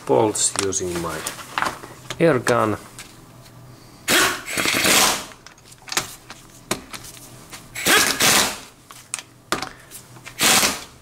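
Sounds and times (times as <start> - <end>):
pneumatic impact wrench bursts: 4.1 - 5.4, 7.8 - 8.7, 10.4 - 10.9.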